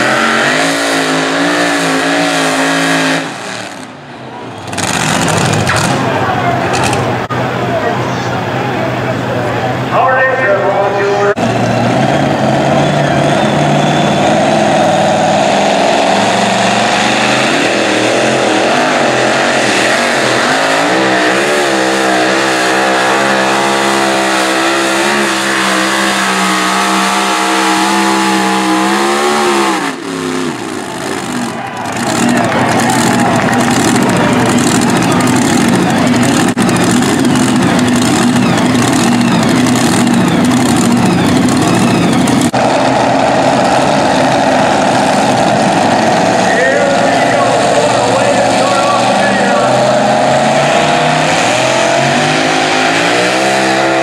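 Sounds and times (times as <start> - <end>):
truck engine at full throttle: 0.0 - 54.0
engine rough idle: 30.8 - 46.4.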